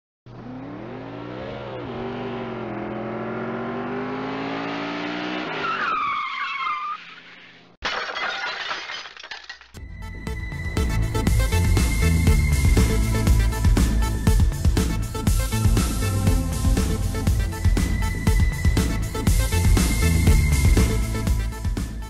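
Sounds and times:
car engine accelerating: 0.3 - 5.8
tyres squealing: 5.5 - 7.6
metal crash clattering: 7.8 - 9.8.

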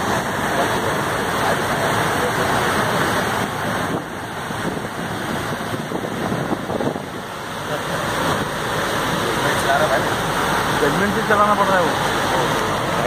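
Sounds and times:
floodwater rushing and splashing: 0.0 - 13.0
locomotive: 0.0 - 13.0
wind buffeting microphone: 2.0 - 10.1.

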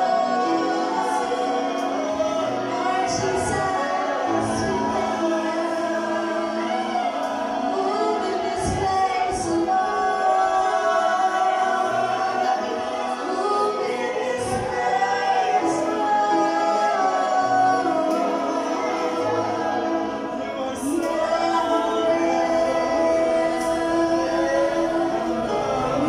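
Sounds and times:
band playing: 0.0 - 26.0
voices singing: 0.0 - 26.0.

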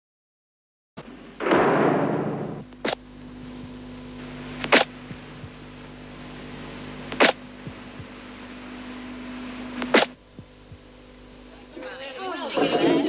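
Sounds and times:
steady low hum: 1.0 - 13.0
loud metal door clang: 1.4 - 2.6.

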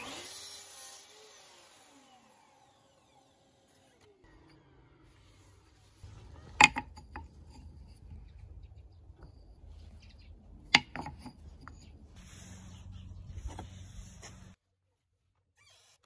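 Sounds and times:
wooden pieces knocking on wood: 6.4 - 8.0, 10.6 - 12.0.

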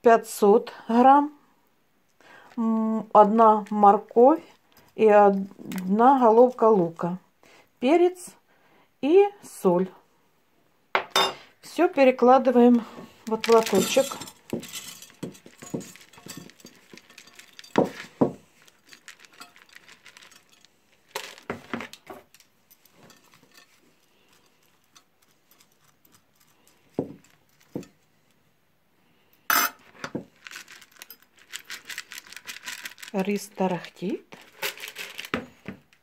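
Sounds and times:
dry rice grains rattling: 13.1 - 27.9, 30.0 - 33.6, 34.3 - 35.4.

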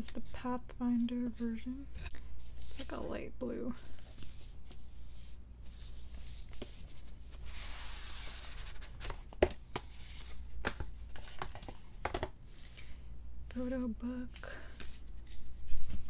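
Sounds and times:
cardboard packaging rustling: 3.9 - 12.8.

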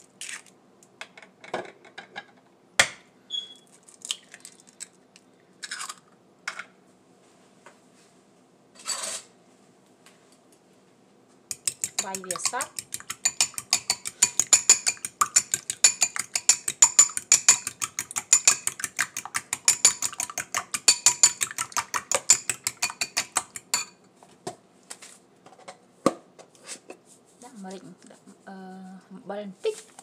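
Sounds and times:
spoon clinking against glass bowl: 11.5 - 24.0
spoon taps: 11.5 - 24.0.

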